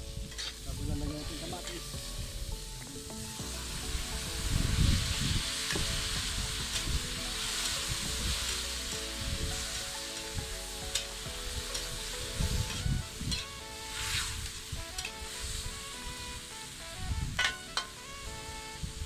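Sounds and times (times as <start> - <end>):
metal spatula stirring and scraping: 0.0 - 2.4, 5.1 - 15.8, 17.4 - 18.0
vegetables sizzling in a wok: 0.0 - 19.0.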